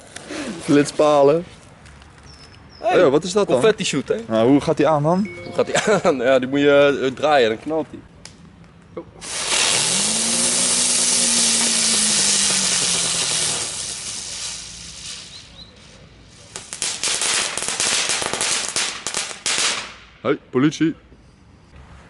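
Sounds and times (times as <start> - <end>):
firework rushing hiss: 9.2 - 20.0
firework sharp crackles: 9.2 - 20.1.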